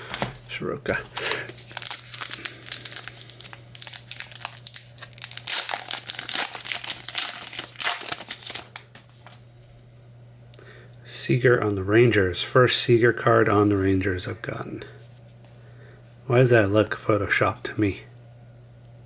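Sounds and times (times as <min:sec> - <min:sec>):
plastic wrapper crinkling and tearing: 0:00.9 - 0:09.4.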